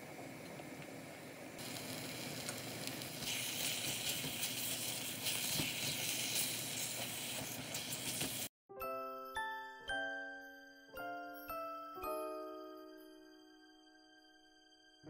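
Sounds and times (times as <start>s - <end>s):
food sizzling on stove: 0.0s - 8.5s.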